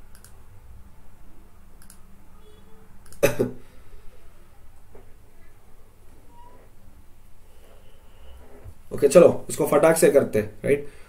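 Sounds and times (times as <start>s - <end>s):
faint clicks: 0.1s - 0.4s, 1.8s - 2.0s.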